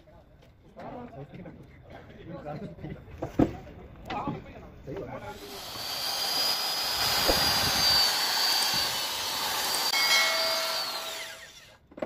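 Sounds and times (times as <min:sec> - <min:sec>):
electric drill boring into wood: 0:05.4 - 0:11.8.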